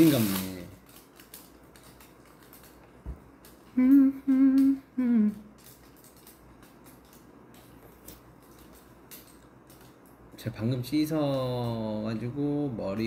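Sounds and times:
man humming: 3.8s - 5.4s.

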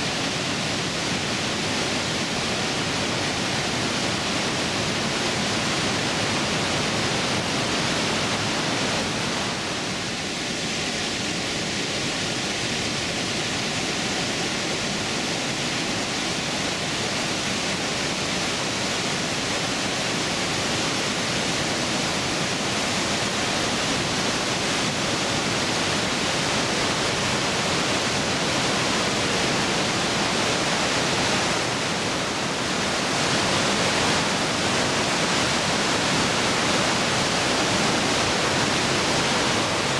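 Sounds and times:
waterfall roaring: 0.0s - 39.9s.

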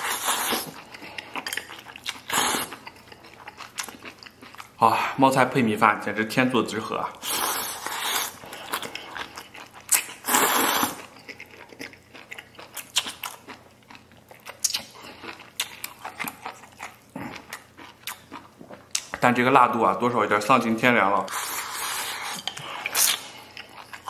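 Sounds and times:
person slurping noodles: 0.0s - 0.8s, 2.3s - 2.8s, 7.2s - 9.1s, 10.2s - 11.1s, 21.3s - 23.3s
chewing close to microphone: 7.7s - 19.1s.

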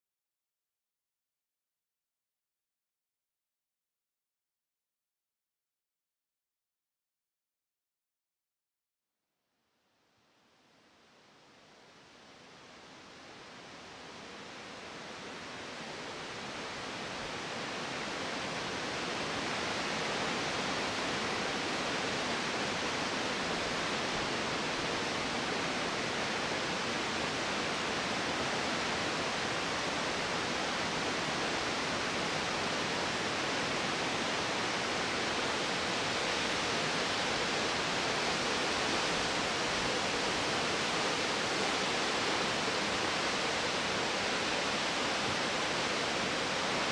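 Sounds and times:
waterfall rushing: 13.4s - 46.9s.

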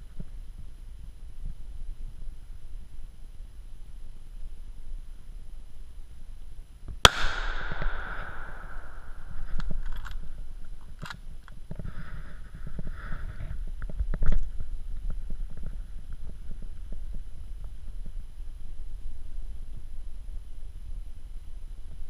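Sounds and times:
steady low rumble: 0.0s - 11.7s
loud bang: 7.1s - 9.9s.

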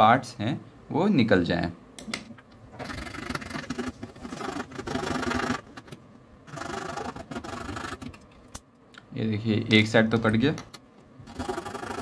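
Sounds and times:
blade sawing through plastic: 2.8s - 5.7s, 6.5s - 8.1s, 11.3s - 12.0s.

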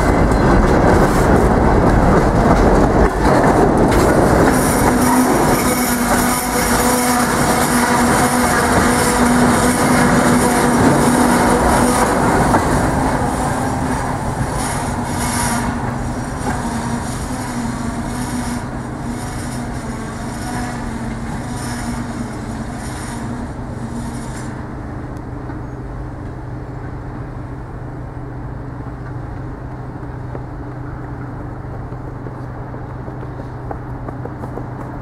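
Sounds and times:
train wheels rumbling on rails: 0.0s - 35.0s
wheels squealing on curve: 4.4s - 24.6s.

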